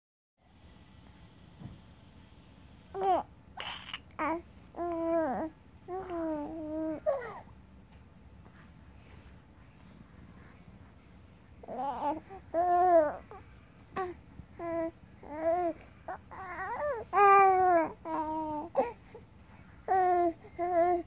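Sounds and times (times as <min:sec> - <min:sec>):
baby cooing: 0:03.0 - 0:07.4, 0:11.6 - 0:13.4, 0:14.0 - 0:19.0.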